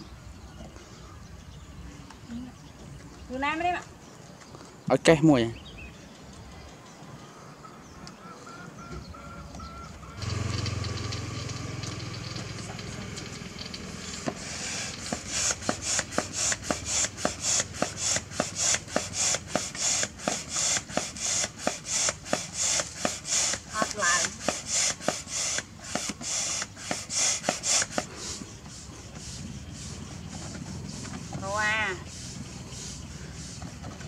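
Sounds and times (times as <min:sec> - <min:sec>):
hand pump hissing puffs: 0:10.2 - 0:34.0.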